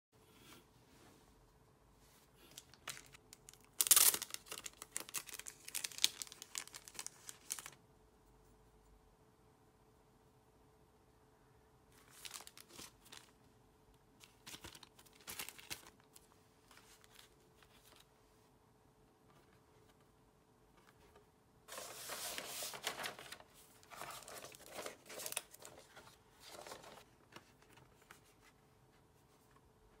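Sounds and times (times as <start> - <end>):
wrapping crackling: 2.5 - 7.8, 12.0 - 13.4
packaging tearing: 2.7 - 7.8.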